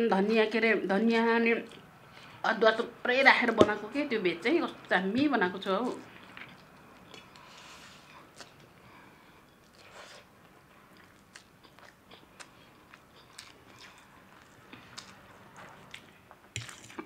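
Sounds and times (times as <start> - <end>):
chewing and slurping noodles: 9.6 - 17.0.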